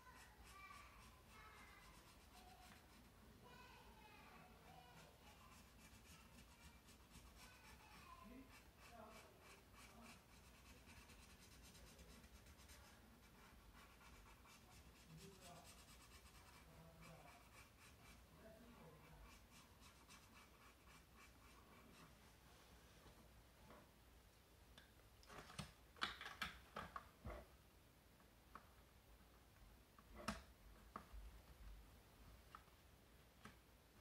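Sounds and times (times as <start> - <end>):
marker scratching on paper: 0.0 - 3.2, 4.7 - 22.2.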